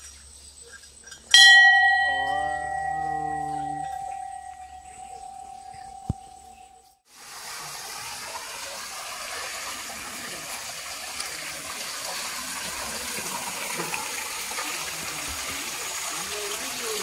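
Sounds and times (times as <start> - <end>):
water pouring into stone trough: 7.2 - 17.0.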